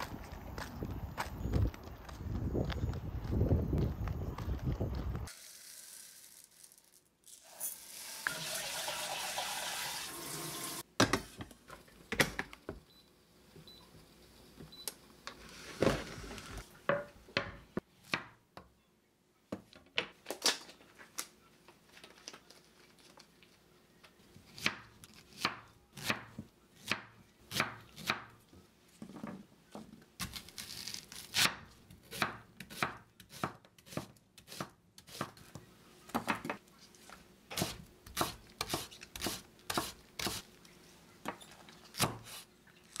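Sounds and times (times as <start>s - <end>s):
water pouring: 7.3s - 10.8s.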